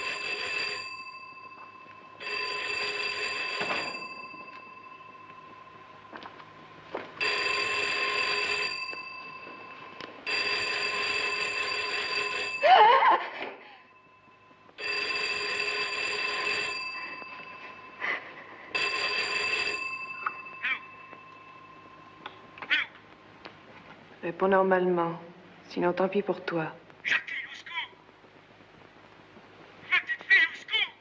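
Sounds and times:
electric telephone bell ringing: 0:00.0 - 0:23.0.

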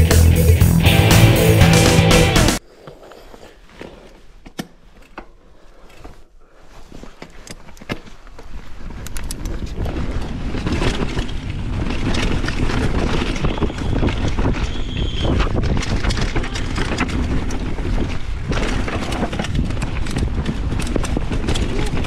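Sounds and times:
bike clicks and rattles: 0:02.9 - 0:22.0
wind on microphone: 0:08.8 - 0:22.0.

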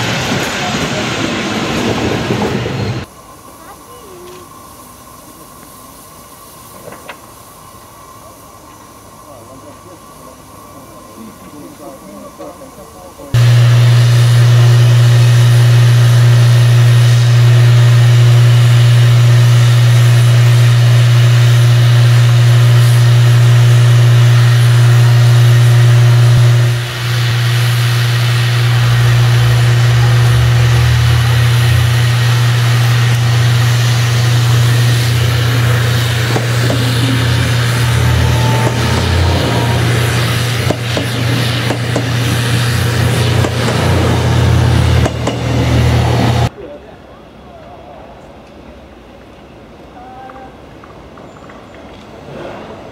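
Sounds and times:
diesel railcar engine running: 0:00.0 - 0:49.9.

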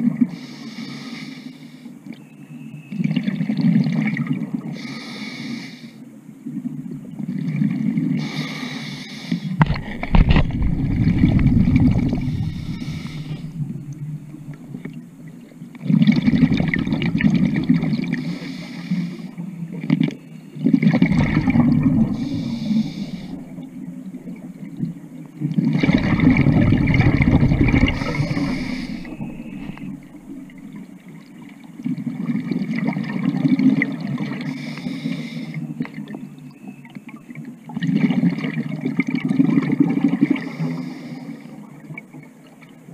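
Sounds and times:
gurgling bubbles: 0:03.0 - 0:04.8, 0:06.5 - 0:08.4, 0:09.6 - 0:34.5, 0:37.7 - 0:40.7
regulator breathing: 0:08.2 - 0:15.0, 0:21.1 - 0:24.4, 0:25.8 - 0:30.7.

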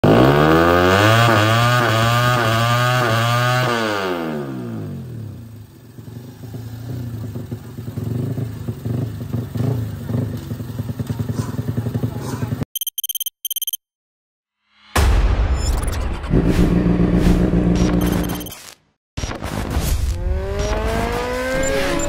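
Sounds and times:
motorcycle engine revving: 0:00.0 - 0:12.6, 0:16.2 - 0:18.5, 0:20.1 - 0:22.0.

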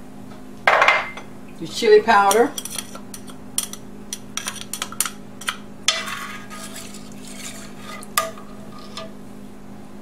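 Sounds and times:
spoon stirring liquid in pot: 0:02.2 - 0:09.2.

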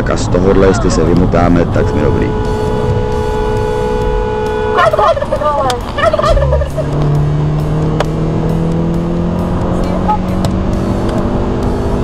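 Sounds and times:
car horn blaring: 0:00.6 - 0:07.1.

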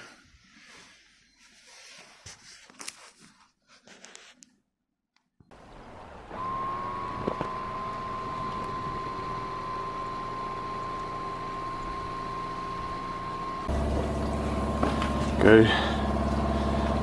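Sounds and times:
machine whining and humming: 0:05.6 - 0:17.0.

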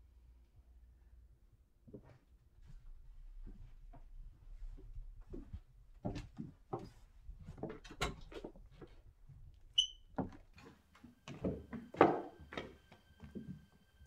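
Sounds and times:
footsteps on wooden floor: 0:01.9 - 0:09.0
short high squeak: 0:09.8 - 0:10.1.

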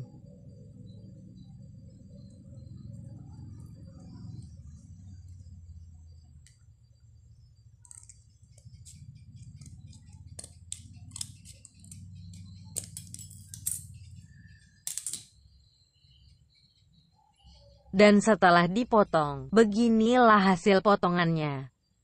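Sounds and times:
scissors snipping thin steel: 0:09.6 - 0:13.8.

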